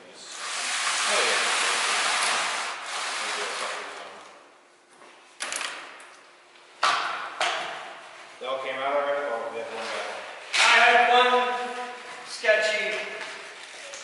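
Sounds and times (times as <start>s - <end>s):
steady hiss: 0.0s - 4.0s.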